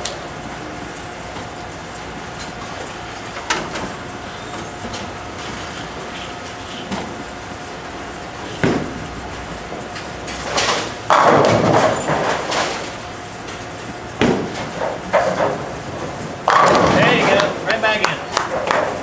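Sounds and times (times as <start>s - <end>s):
bowling balls rolling: 6.9s - 19.0s
bowling pins crashing: 10.4s - 13.0s, 14.1s - 17.6s.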